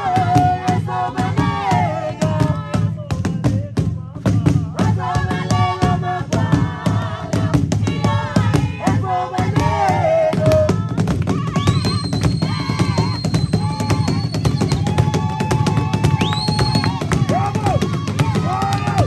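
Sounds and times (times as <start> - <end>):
group singing and chanting: 0.0 - 19.0
steady beat: 12.5 - 19.0.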